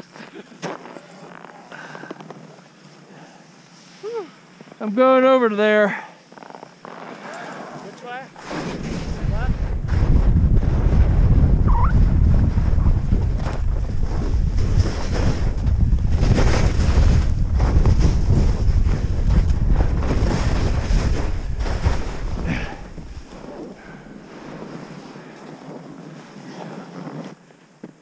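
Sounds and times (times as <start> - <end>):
skis scraping over snow: 6.3 - 27.4
wind buffeting microphone: 8.6 - 23.8.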